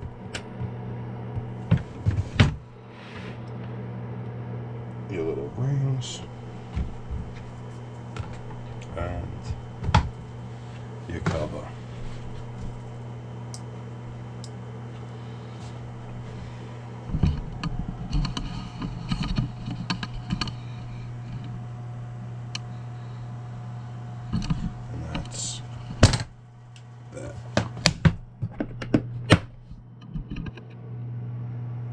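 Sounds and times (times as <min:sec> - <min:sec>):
steady low hum: 0:00.0 - 0:31.9
rustling and knocks on plastic case: 0:06.6 - 0:07.5, 0:09.5 - 0:10.2.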